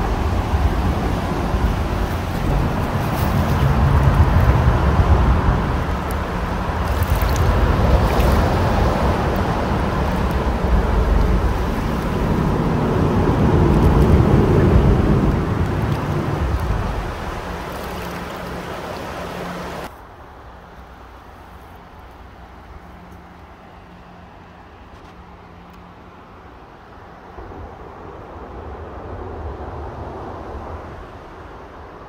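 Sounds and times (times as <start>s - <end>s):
wind rumbling on microphone: 0.0s - 20.6s, 21.6s - 32.0s
river rushing over rocks: 0.0s - 22.6s.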